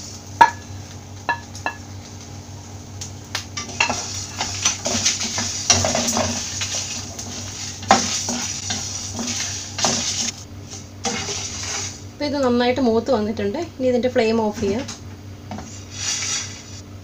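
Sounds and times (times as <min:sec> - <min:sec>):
spices rattling in a frying pan: 0:00.0 - 0:12.6.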